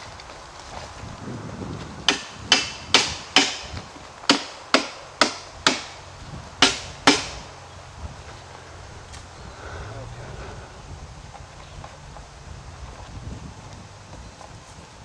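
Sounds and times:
hammering post into ground: 1.8s - 7.5s.

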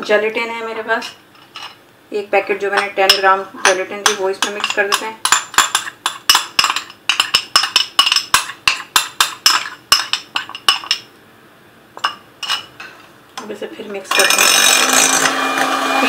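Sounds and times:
metal spoon clinking glass bowl: 2.8s - 11.1s, 12.0s - 12.8s.

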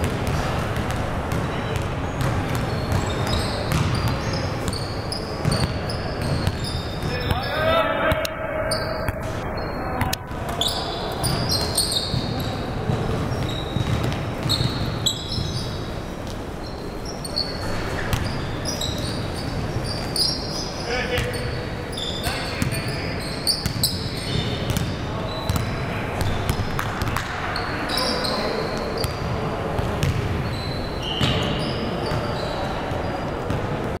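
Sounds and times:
basketball bouncing: 0.0s - 4.2s, 5.4s - 7.1s, 11.2s - 15.5s, 18.1s - 18.4s, 23.6s - 27.4s, 29.0s - 30.4s
sneakers squeaking: 0.0s - 34.0s.

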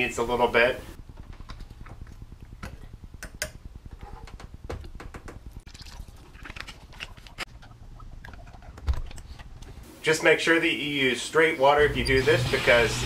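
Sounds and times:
water pouring from jug: 5.7s - 8.8s.

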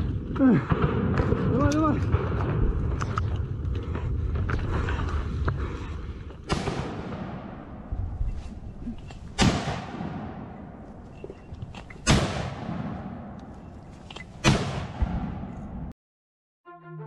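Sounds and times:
gunshots echoing through woods: 0.0s - 5.0s, 6.4s - 8.2s, 9.2s - 13.7s, 14.3s - 15.9s.

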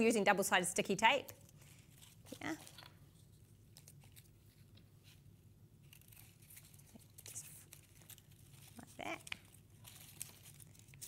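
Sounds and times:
paper tearing: 5.8s - 11.0s
sticky tape peeling: 5.8s - 11.0s.

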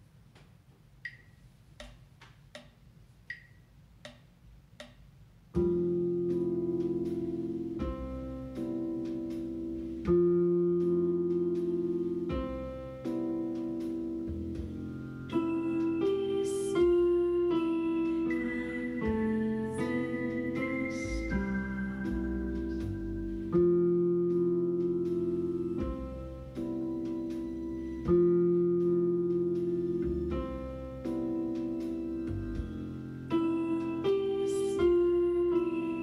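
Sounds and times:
metronome ticks: 0.4s - 7.2s
piano melody line: 5.5s - 36.0s
slow sustained piano chords: 5.6s - 36.0s.

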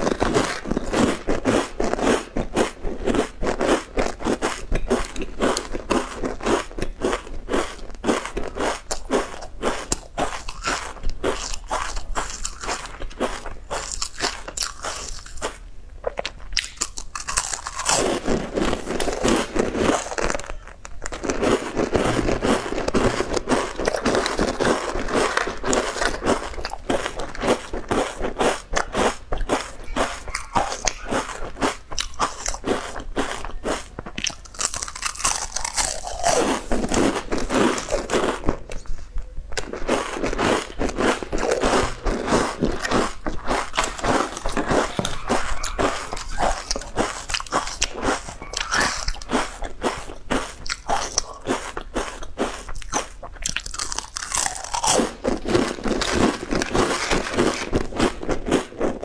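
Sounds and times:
biscuits crunching: 0.0s - 59.0s
chewing: 0.0s - 59.0s.

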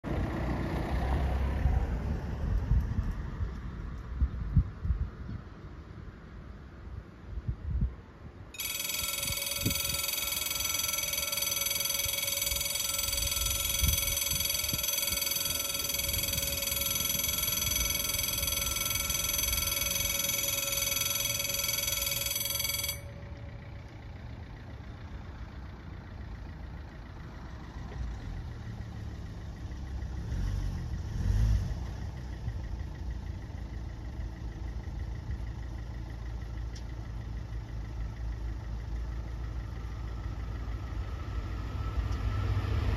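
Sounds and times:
low engine rumble: 0.1s - 42.9s
level crossing warning bells: 8.6s - 26.8s.

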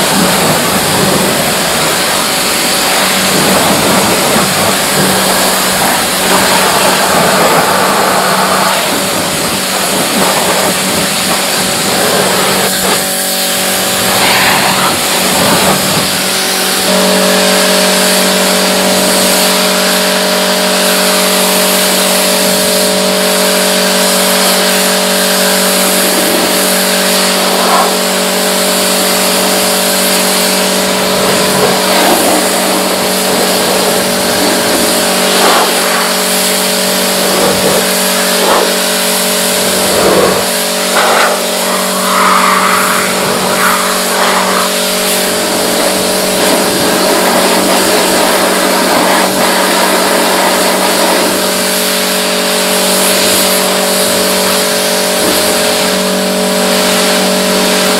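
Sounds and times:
pressure washer motor hum: 0.0s - 57.9s
water spray hissing: 0.0s - 57.9s.

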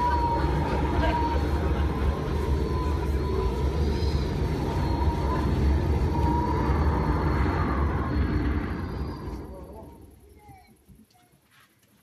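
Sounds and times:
storm wind over loudspeakers: 0.0s - 10.3s.

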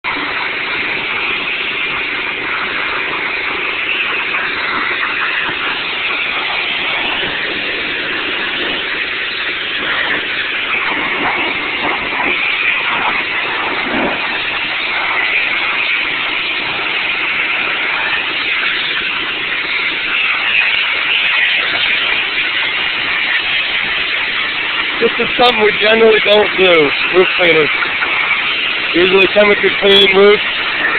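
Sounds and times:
pressure washer engine running: 0.0s - 30.9s
pressure washer spray hissing: 0.1s - 30.9s.

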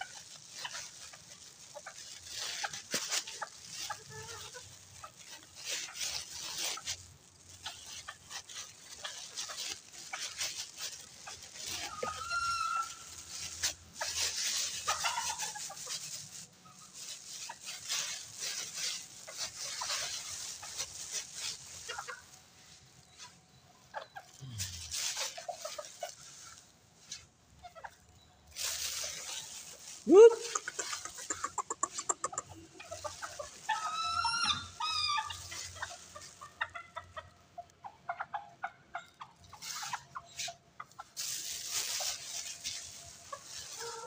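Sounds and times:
chickens clucking: 0.0s - 44.0s
beaks tapping on concrete: 30.4s - 32.6s.

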